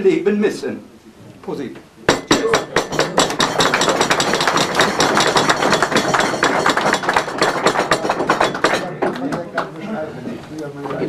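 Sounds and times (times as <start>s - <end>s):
people applauding: 3.0s - 9.8s.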